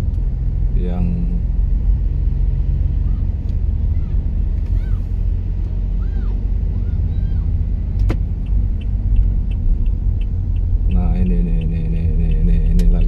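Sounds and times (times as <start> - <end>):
car engine and tyre rumble: 0.0 - 13.0
light even ticks: 8.4 - 13.0.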